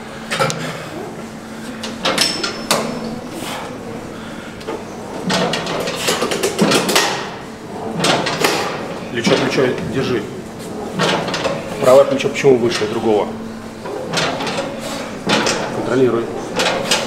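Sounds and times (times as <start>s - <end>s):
steady low hum: 0.0s - 17.0s
pulldown machine knocking and scraping: 4.7s - 13.1s, 13.8s - 17.0s.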